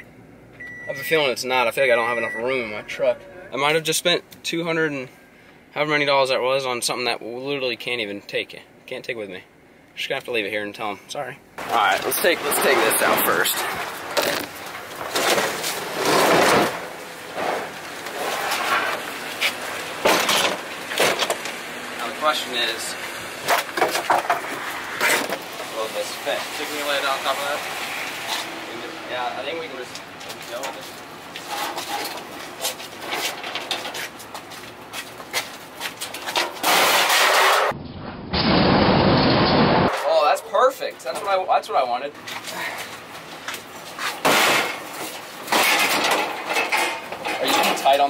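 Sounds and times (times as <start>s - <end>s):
objects scraping on rubber mat: 12.3s - 20.6s
loud rushing noise: 36.8s - 40.0s.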